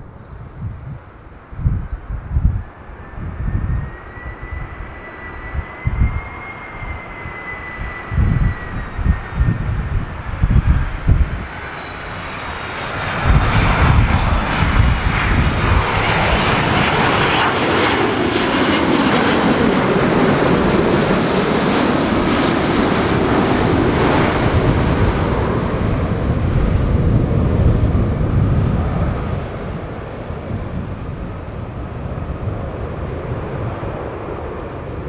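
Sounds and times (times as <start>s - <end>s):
faint high whine: 0.0s - 24.2s
jet engines passing overhead: 0.0s - 35.0s.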